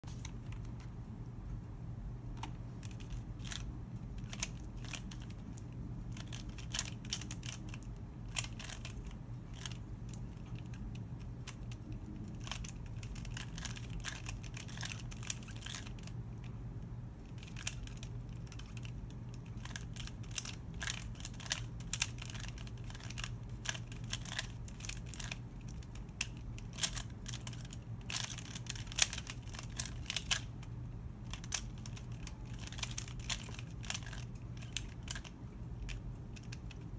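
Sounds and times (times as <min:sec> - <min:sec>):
low steady hum: 0:00.0 - 0:36.9
plastic puzzle clicking: 0:17.4 - 0:30.5, 0:31.3 - 0:36.8.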